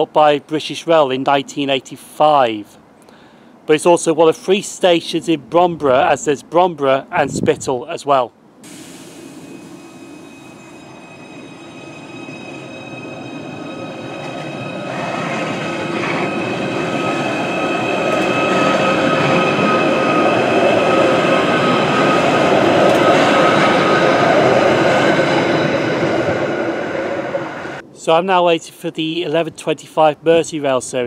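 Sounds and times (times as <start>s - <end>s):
wheel-and-rail noise: 8.6s - 27.8s
electric train whine: 8.6s - 28.1s.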